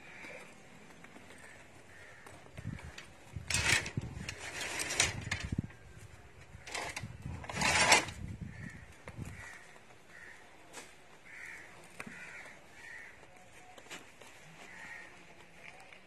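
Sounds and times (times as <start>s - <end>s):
metal gate bars rattling and scraping: 3.4s - 5.6s, 6.6s - 8.2s.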